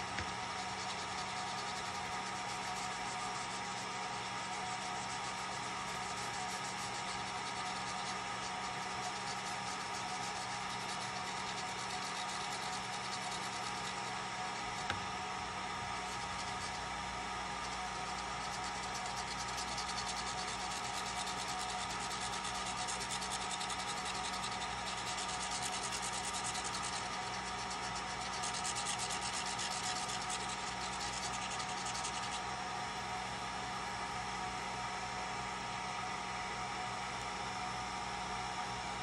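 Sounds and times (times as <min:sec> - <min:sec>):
laser engraver humming: 0:00.0 - 0:39.0.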